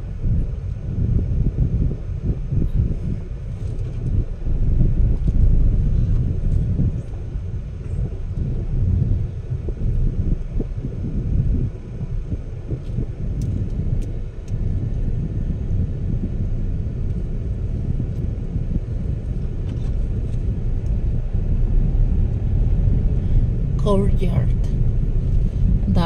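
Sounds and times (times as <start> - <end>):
car engine and tyres rumbling: 0.0 - 26.0.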